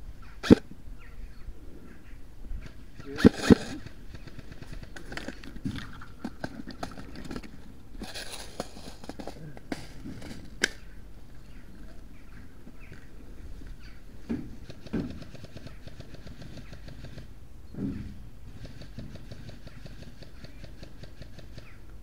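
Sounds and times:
sharp cracks: 0:00.4 - 0:00.7, 0:03.0 - 0:11.0
rustling through long grass: 0:02.5 - 0:17.2.

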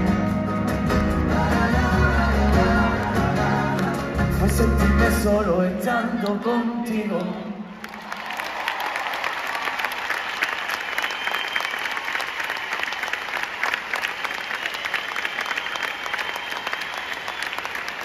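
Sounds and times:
audience applauding: 0:07.7 - 0:18.0.

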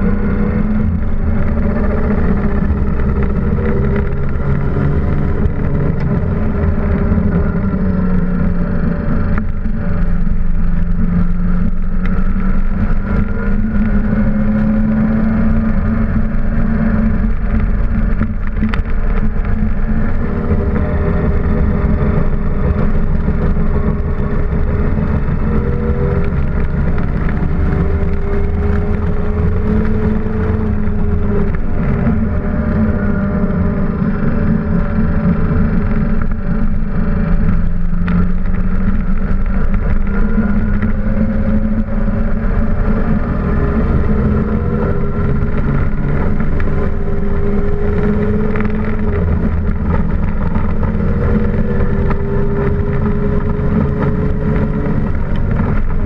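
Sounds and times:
race car engine revving: 0:00.0 - 0:56.0.

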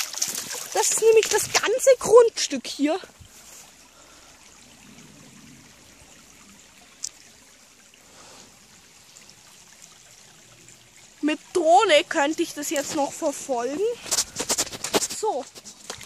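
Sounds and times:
brook trickling faintly: 0:00.0 - 0:16.0.

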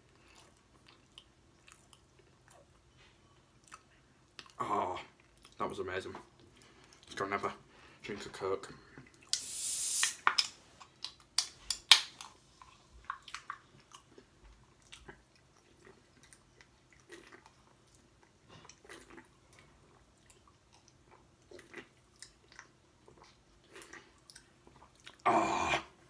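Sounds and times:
person gulping and swallowing: 0:16.9 - 0:26.0.

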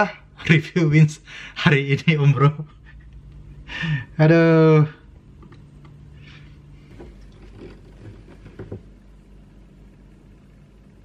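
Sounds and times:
low hum: 0:02.6 - 0:11.0.

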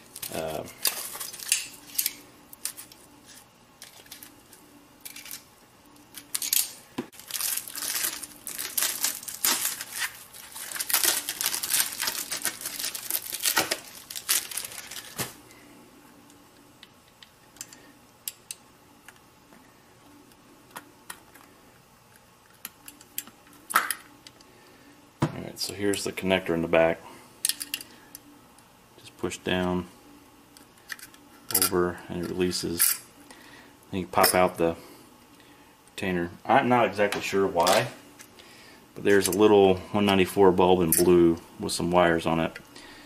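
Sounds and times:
plastic rustling scraping and clicking: 0:06.1 - 0:15.4.

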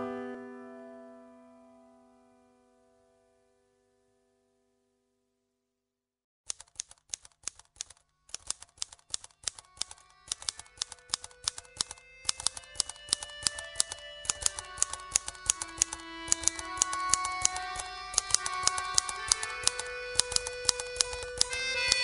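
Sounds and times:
rapid typewriter-like clicks: 0:06.5 - 0:22.0
sustained instrumental notes: 0:10.0 - 0:22.0.

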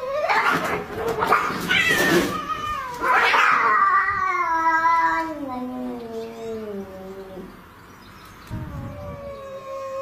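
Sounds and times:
cat yowling: 0:00.0 - 0:07.4, 0:08.6 - 0:10.0
cats screeching and spitting: 0:00.0 - 0:07.4.

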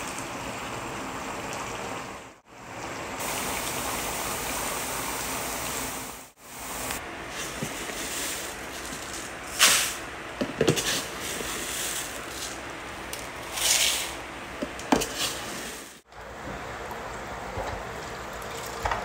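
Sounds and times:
rice grains pouring: 0:06.6 - 0:10.1, 0:10.7 - 0:14.2.

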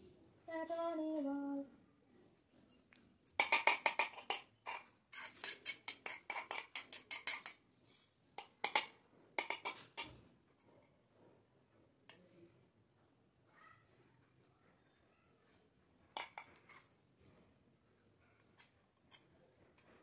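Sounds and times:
spoon scraping metal bowl: 0:03.4 - 0:10.2, 0:16.2 - 0:17.0.

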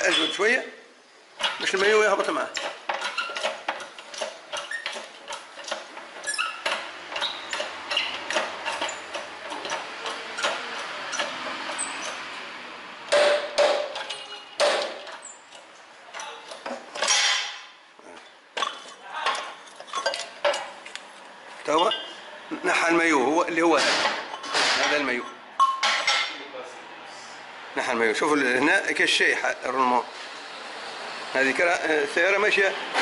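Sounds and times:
loud metal clanks: 0:13.1 - 0:15.3, 0:23.7 - 0:26.4.

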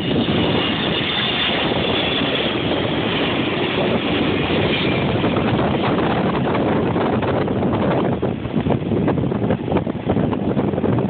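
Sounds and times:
jet airliner rumble overhead: 0:00.0 - 0:11.0.

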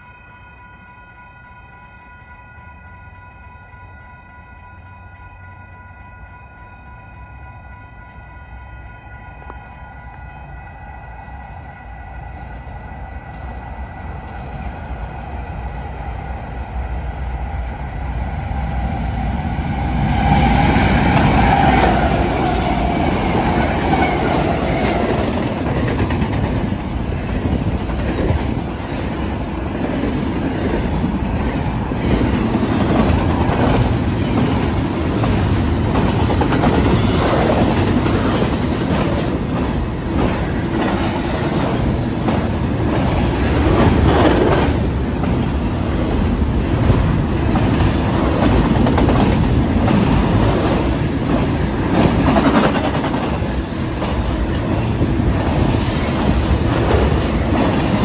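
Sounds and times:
steady ringing tone: 0:00.0 - 0:12.4
freight train passing: 0:00.0 - 0:58.0.

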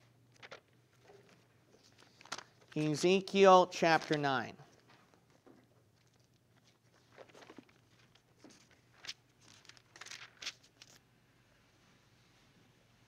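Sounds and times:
pages turning: 0:00.3 - 0:03.0, 0:03.8 - 0:11.0.

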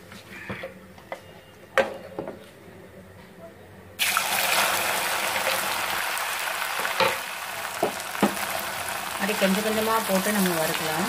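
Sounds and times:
deep-frying sizzle: 0:04.0 - 0:11.0.

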